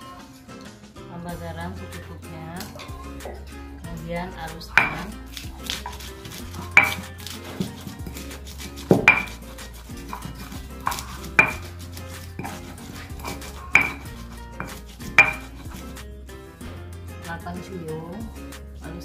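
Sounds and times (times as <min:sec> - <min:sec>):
stone scraping on stone: 0:04.7 - 0:16.1
stone-on-stone clacks: 0:04.8 - 0:05.1, 0:06.6 - 0:08.2, 0:08.8 - 0:09.4, 0:10.0 - 0:11.8, 0:12.4 - 0:15.8.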